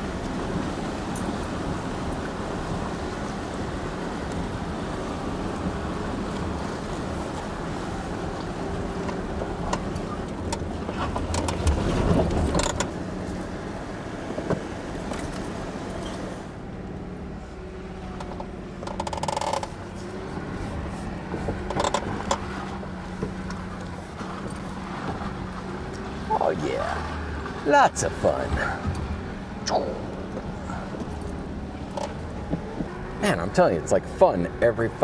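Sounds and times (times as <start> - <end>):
body and suspension rattling: 3.6 - 17.2, 17.9 - 34.2.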